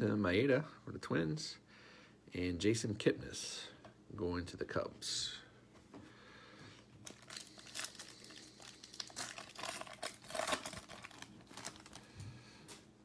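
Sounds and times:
foil wrapper tearing and crinkling: 7.0s - 12.2s.

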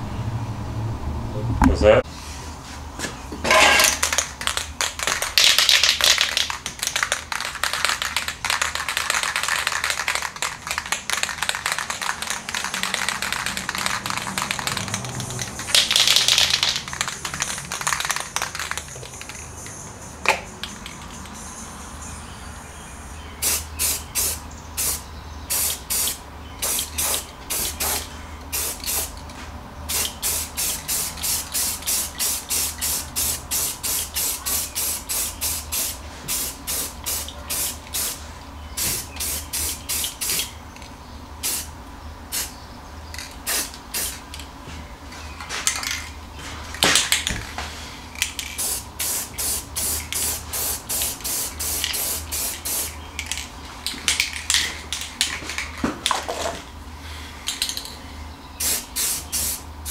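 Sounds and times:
spray-paint can hissing bursts: 4.0s - 19.7s, 23.4s - 29.2s, 29.9s - 38.2s, 38.8s - 40.5s, 41.4s - 41.7s, 42.3s - 42.5s, 43.4s - 44.2s, 48.4s - 53.3s, 58.6s - 59.9s.

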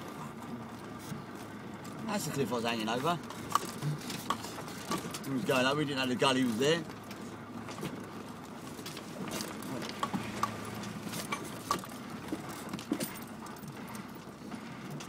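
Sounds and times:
car engine hum: 0.0s - 15.0s
vehicle knocks and rattles: 1.7s - 15.0s.

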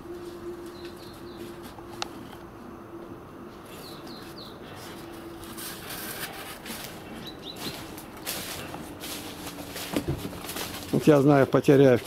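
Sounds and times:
small birds chirping: 0.7s - 1.6s, 3.6s - 5.0s, 7.0s - 8.0s
rustling: 3.6s - 12.0s.

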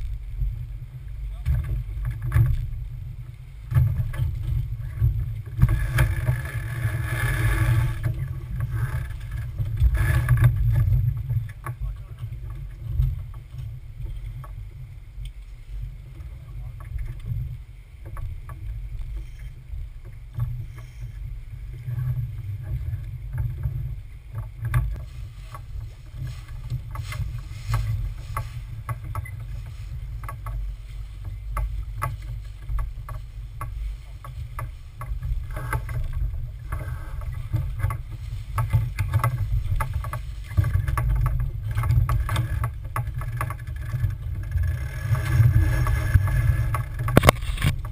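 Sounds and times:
wind and water rumble: 0.0s - 47.9s
rigging clicks and knocks: 1.4s - 2.8s, 3.7s - 14.6s, 21.8s - 47.9s.

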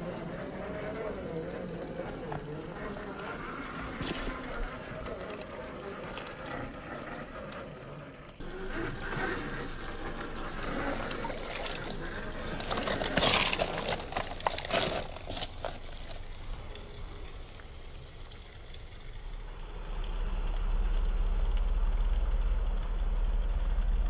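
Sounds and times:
tyres scraping and crunching on rock: 0.0s - 19.1s
small electric motor running: 0.0s - 19.2s.

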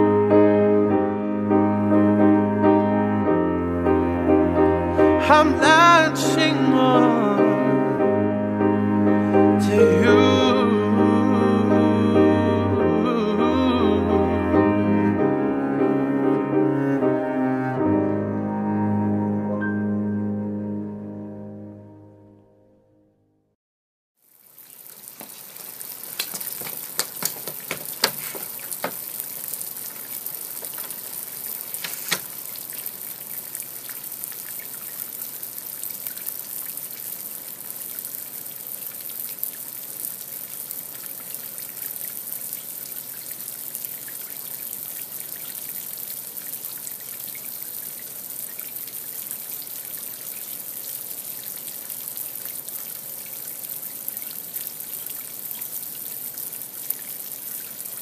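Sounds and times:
trickling hissing water: 8.9s - 17.8s, 24.2s - 58.0s.

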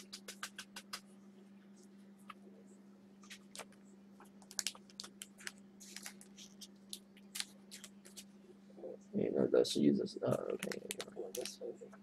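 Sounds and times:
trading cards clicking and rustling: 0.0s - 1.0s, 3.2s - 8.3s, 10.3s - 11.6s
low electrical hum: 0.0s - 12.0s.

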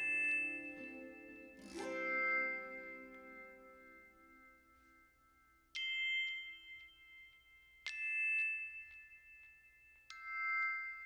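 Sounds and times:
bell-like chime strikes: 0.0s - 11.0s.

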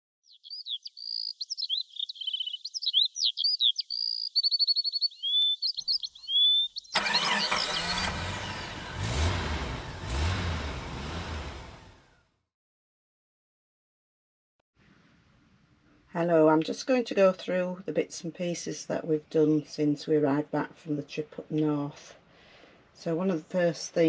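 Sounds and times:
songbirds chirping and trilling: 0.2s - 8.7s
car engine revving: 7.0s - 12.2s.

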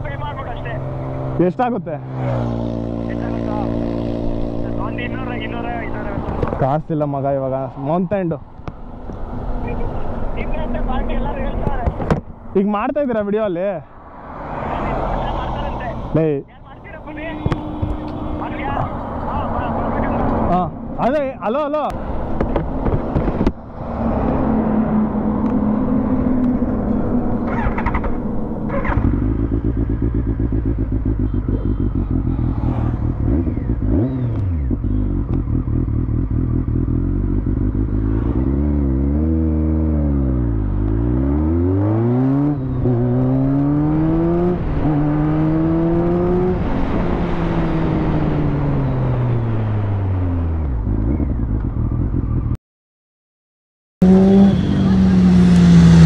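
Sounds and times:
motorcycle engine revving: 0.0s - 7.1s, 14.2s - 20.8s, 21.8s - 52.6s, 54.0s - 56.0s.

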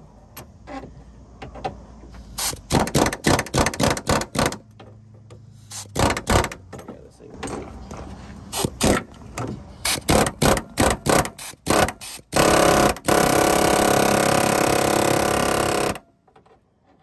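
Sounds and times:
power wrench running: 9.8s - 16.0s.

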